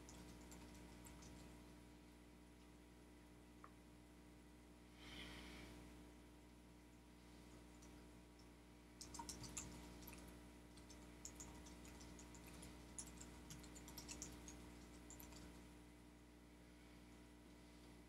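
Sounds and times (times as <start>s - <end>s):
computer keyboard typing: 0.0s - 1.5s, 9.0s - 15.6s.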